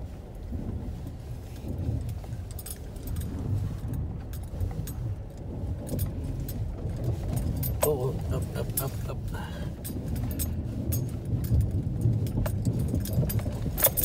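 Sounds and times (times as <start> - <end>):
vehicle rumbling over ice: 0.0 - 14.0
sharp clicks and rattles: 0.5 - 14.0.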